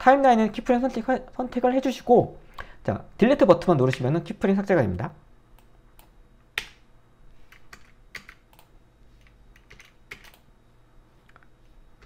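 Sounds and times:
computer keyboard clicks: 0:07.5 - 0:10.4.

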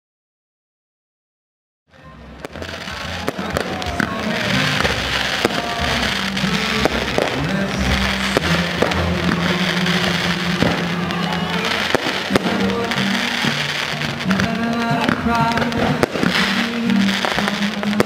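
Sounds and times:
fireworks popping and cracking: 0:02.3 - 0:18.0.

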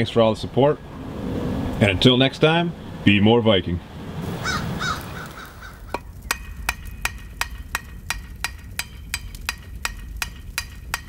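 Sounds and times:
hammer striking an anvil: 0:05.9 - 0:11.0.

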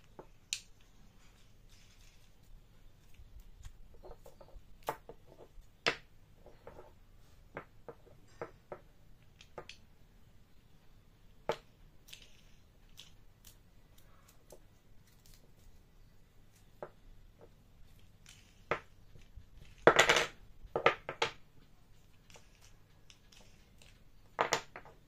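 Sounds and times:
wooden pieces knocking on table: 0:18.3 - 0:21.4, 0:23.8 - 0:25.0.

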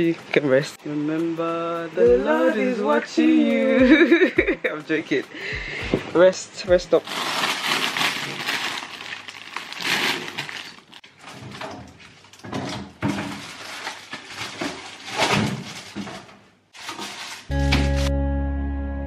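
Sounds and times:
plastic bags rustling: 0:06.9 - 0:17.6.

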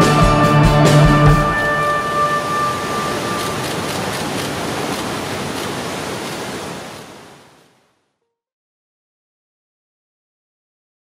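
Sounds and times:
rock music: 0:00.0 - 0:03.0
heavy surf roaring: 0:00.8 - 0:07.9.

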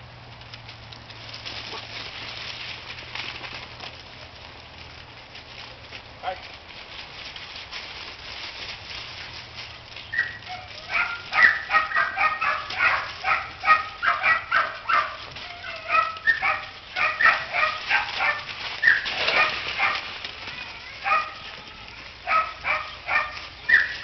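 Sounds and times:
dog barking high-pitched: 0:10.2 - 0:20.1, 0:21.0 - 0:21.4, 0:22.2 - 0:24.0.

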